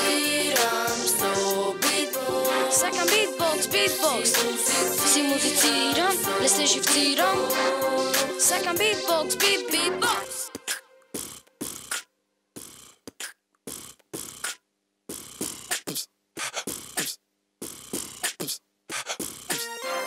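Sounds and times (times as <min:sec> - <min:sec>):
person beatboxing: 0:00.0 - 0:05.0, 0:08.1 - 0:19.6.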